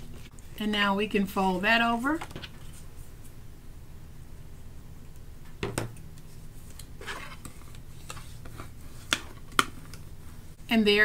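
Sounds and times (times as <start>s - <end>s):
paper rustling and rubbing: 1.9s - 3.1s.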